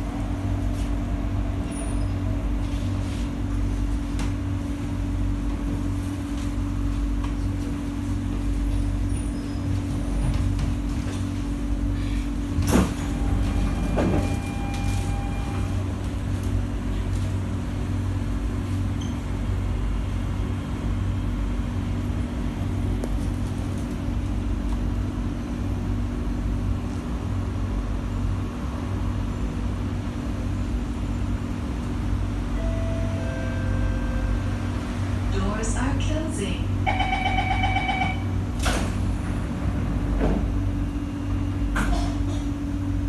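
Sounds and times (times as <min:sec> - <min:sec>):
train equipment humming: 0:00.0 - 0:43.0
train doors opening clunk: 0:12.5 - 0:15.7, 0:37.5 - 0:40.6
chime tone: 0:32.6 - 0:34.5
short steady tone: 0:32.6 - 0:34.7.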